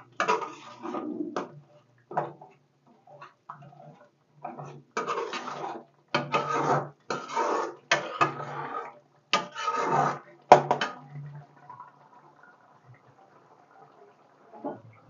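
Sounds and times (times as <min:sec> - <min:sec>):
metal spoon scraping metal pan: 0:00.2 - 0:01.5, 0:04.4 - 0:10.9.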